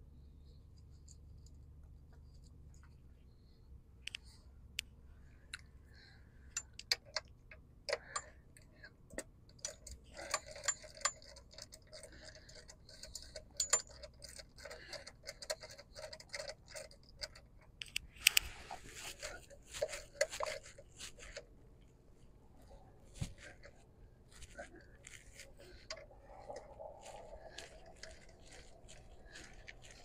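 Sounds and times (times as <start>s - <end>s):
ratchet wrench clicking: 9.2s - 18.4s.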